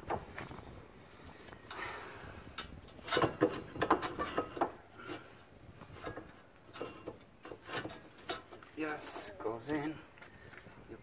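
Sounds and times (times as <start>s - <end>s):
sharp metal clicks and knocks: 2.5s - 5.2s, 6.0s - 8.7s.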